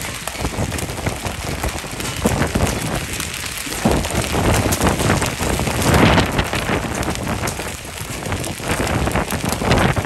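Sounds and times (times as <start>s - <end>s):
heavy rain and hail: 0.0s - 10.0s
wind gusting on microphone: 0.0s - 10.0s.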